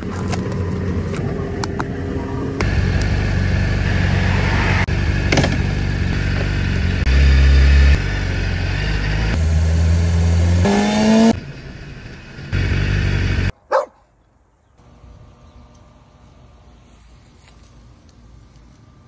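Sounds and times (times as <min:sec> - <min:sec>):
motorcycle engine running: 0:00.0 - 0:13.5.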